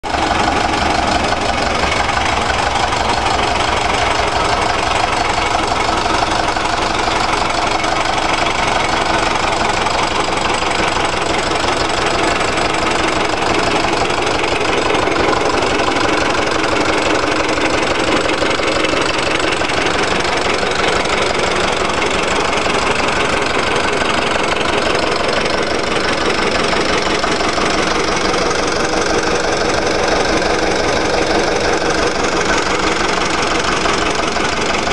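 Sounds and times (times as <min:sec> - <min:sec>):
diesel engine running steadily: 0:00.0 - 0:34.9.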